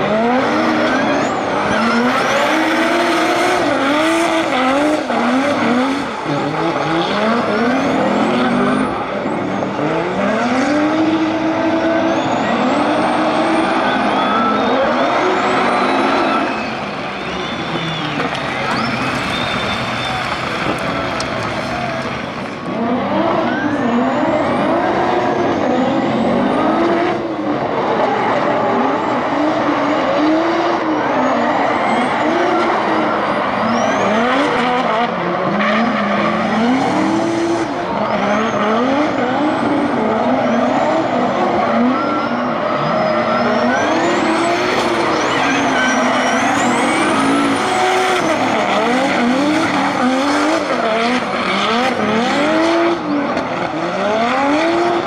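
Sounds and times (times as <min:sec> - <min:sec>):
high-revving car engines: 0:00.0 - 0:55.0
tyres squealing while sliding: 0:13.4 - 0:21.0, 0:41.8 - 0:50.1.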